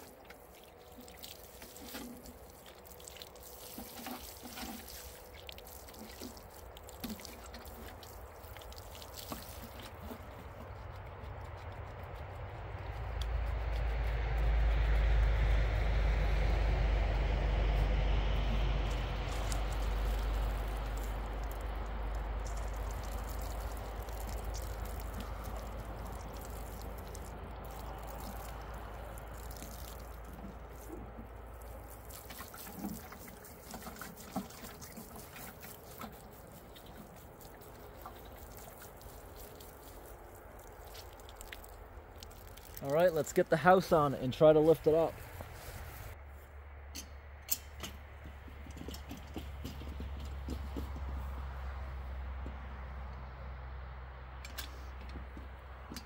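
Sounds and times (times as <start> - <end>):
water pouring onto soil: 0.0 - 13.4, 18.3 - 46.2
water dripping: 0.0 - 13.5, 18.4 - 43.9.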